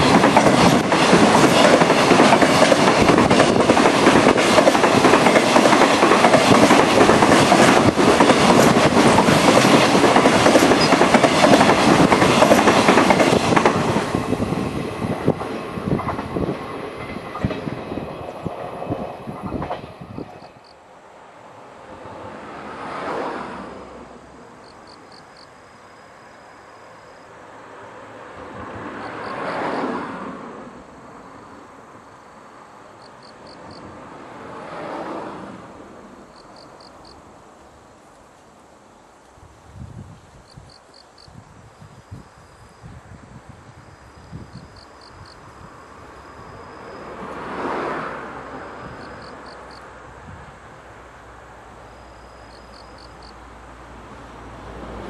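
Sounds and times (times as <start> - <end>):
freight locomotive rumble: 0.0 - 20.7
insects chirping: 0.0 - 35.1, 35.8 - 54.9
road vehicles passing: 0.0 - 39.2, 42.8 - 55.0.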